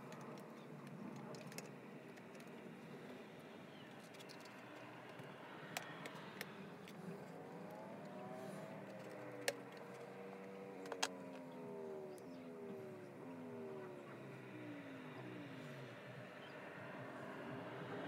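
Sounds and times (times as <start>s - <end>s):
faint hum rising and falling: 0.0s - 18.0s
plastic parts clicking and tapping: 0.1s - 2.6s, 10.8s - 11.4s.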